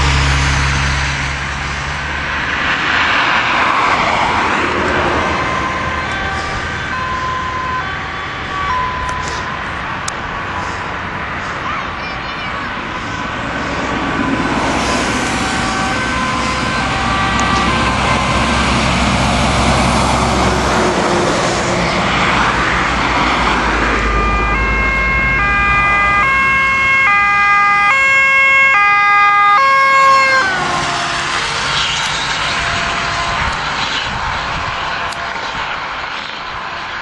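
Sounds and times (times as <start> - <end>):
traffic road rumble: 0.0 - 37.0
ambulance two-tone siren: 3.9 - 10.1, 13.0 - 21.3, 22.2 - 35.7.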